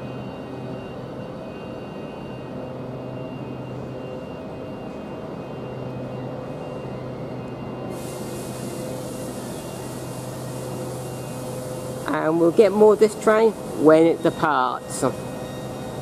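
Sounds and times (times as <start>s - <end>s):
electric train humming: 0.0s - 16.0s
steady hiss: 7.9s - 12.4s.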